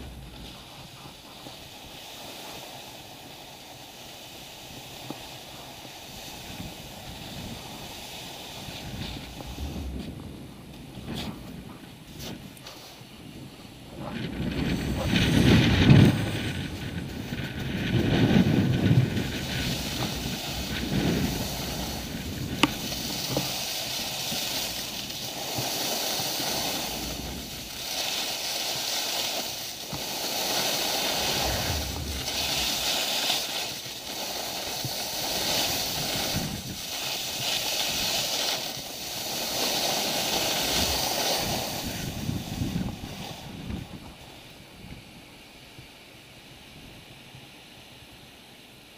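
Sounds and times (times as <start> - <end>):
wind buffeting microphone: 0.0 - 2.2, 4.6 - 27.9, 29.8 - 39.6, 40.2 - 45.3
skis scraping over snow: 0.0 - 44.6.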